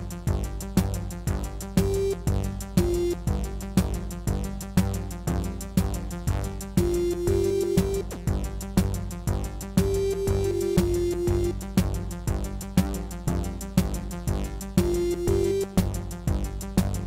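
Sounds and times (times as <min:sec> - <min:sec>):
electronic dance music: 0:01.8 - 0:03.3, 0:06.8 - 0:08.3, 0:09.8 - 0:11.6, 0:14.8 - 0:15.9.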